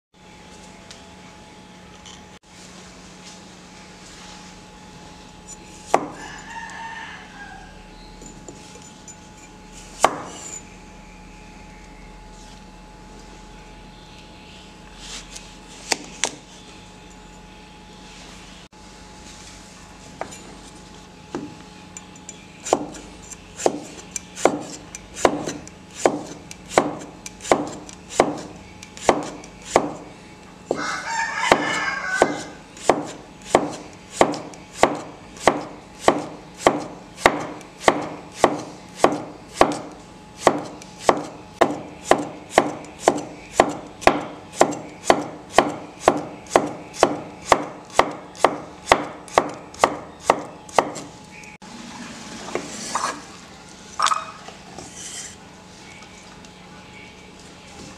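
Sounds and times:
cleaver chopping on wooden board: 5.9 - 6.2, 10.0 - 10.4, 22.6 - 23.0, 23.6 - 30.0, 31.5 - 51.1.

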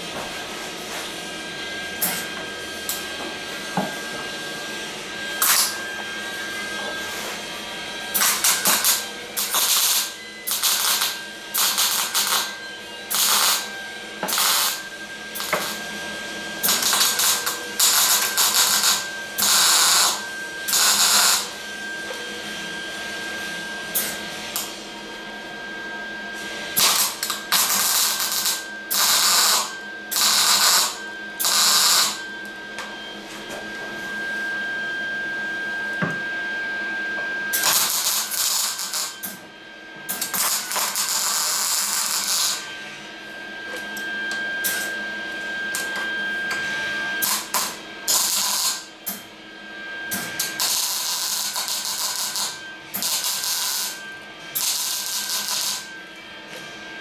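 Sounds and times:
welder arc bursts: 5.4 - 5.8, 8.1 - 15.8, 16.6 - 21.6, 26.8 - 32.2, 37.5 - 39.2, 40.1 - 42.6, 47.2 - 48.9, 50.4 - 54.0, 54.6 - 55.9.

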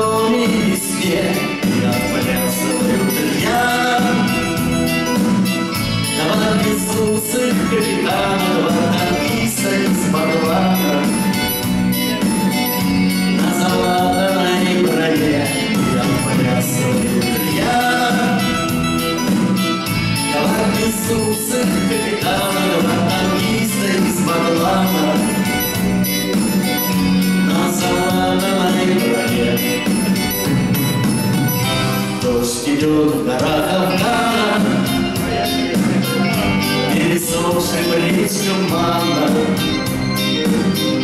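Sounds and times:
live band playing: 0.0 - 41.0.

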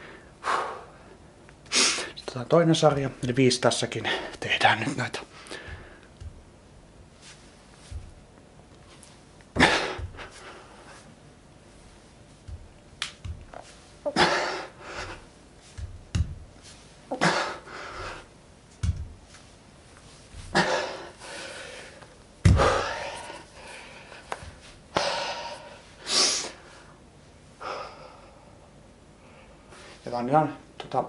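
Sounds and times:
man breathing forcefully: 0.0 - 2.1, 5.3 - 6.5, 9.5 - 11.2, 14.1 - 16.4, 17.1 - 18.4, 20.4 - 27.0
dull thumps: 5.6 - 6.9, 7.8 - 8.4, 9.5 - 10.4, 12.4 - 13.8, 15.0 - 16.6, 18.0 - 19.4, 22.4 - 23.0.

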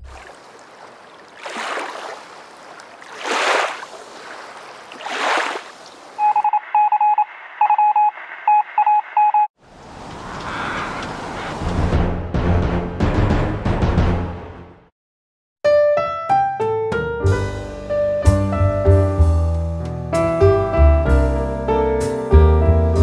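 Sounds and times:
morse code beeps: 6.2 - 9.5.

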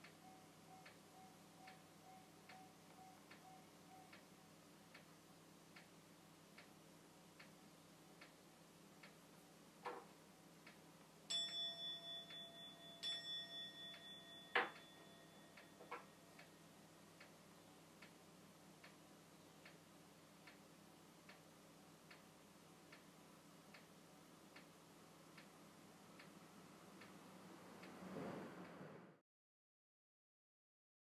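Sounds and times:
faint steady ticking: 0.0 - 28.0
bowl bell ringing: 11.3 - 16.4.

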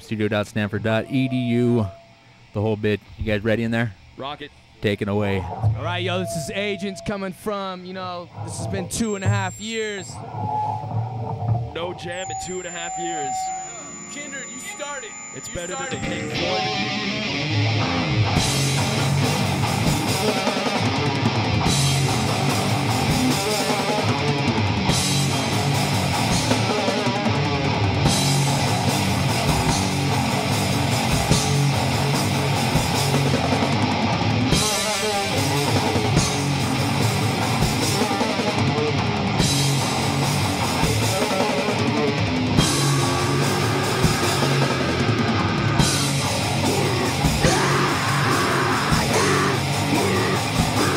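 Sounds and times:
electric guitar: 15.8 - 50.9
bass guitar: 16.3 - 50.9
drum kit: 18.1 - 50.9.

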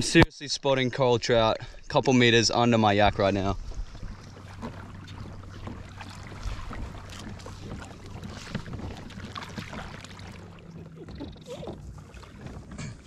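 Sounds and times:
water lapping against kayak hull: 1.2 - 13.0
small splashes: 3.6 - 13.0.

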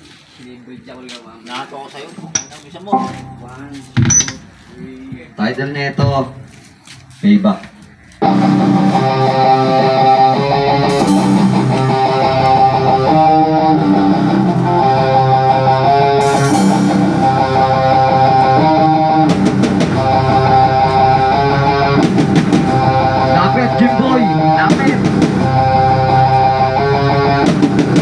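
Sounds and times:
electric guitar chords: 2.9 - 4.1, 8.2 - 28.0
drum kit: 2.9 - 4.6, 8.2 - 28.0.

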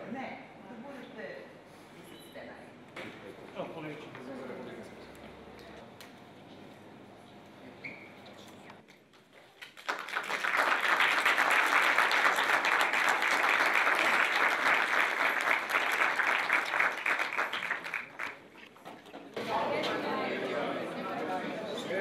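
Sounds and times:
audience applauding: 9.6 - 18.7.

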